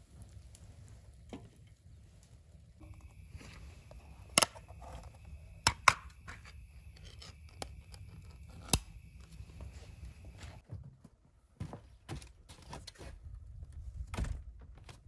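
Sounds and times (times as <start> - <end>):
metal lid scraping and tearing: 4.3 - 8.9
can lid popping open: 5.6 - 6.5.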